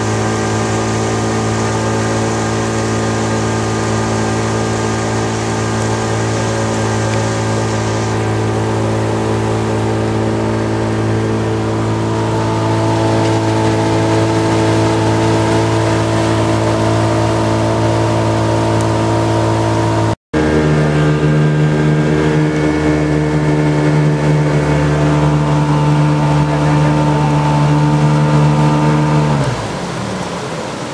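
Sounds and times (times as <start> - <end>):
outboard motor running: 0.0 - 30.9.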